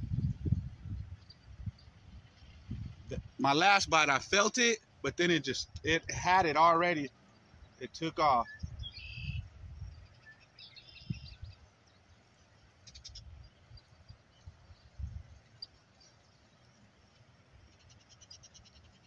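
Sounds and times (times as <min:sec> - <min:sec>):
wind on microphone: 0:00.0 - 0:04.2, 0:05.6 - 0:06.6, 0:08.5 - 0:10.1, 0:14.5 - 0:15.4.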